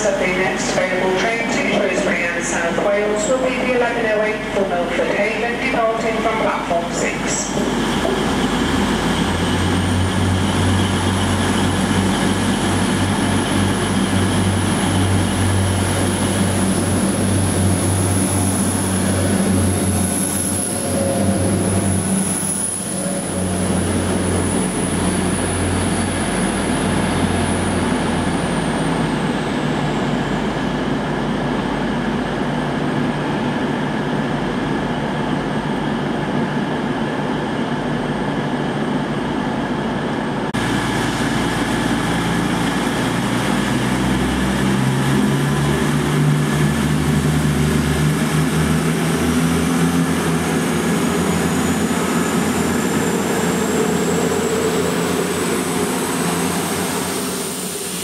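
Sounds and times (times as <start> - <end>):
diesel train engine drone: 0.0 - 58.0
thin high whine: 14.8 - 26.7.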